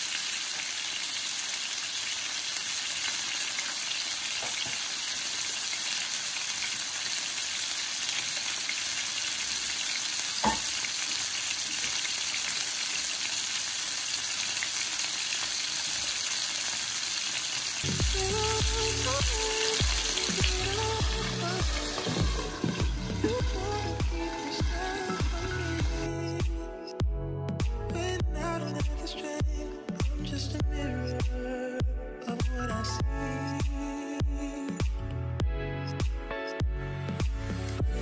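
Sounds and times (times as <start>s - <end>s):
chicken sizzling in oil: 0.0s - 26.0s
music: 17.8s - 38.0s.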